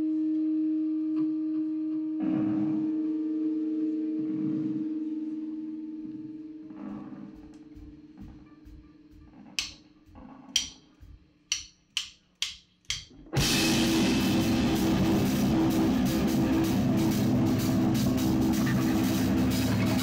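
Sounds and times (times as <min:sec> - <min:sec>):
rock band playing: 0:13.4 - 0:20.0.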